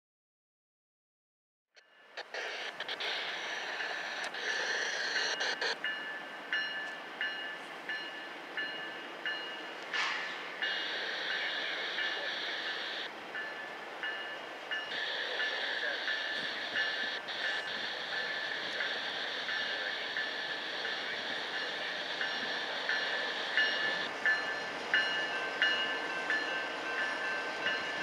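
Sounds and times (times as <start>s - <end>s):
freight train approaching: 1.8s - 28.0s
bell ringing: 13.4s - 28.0s.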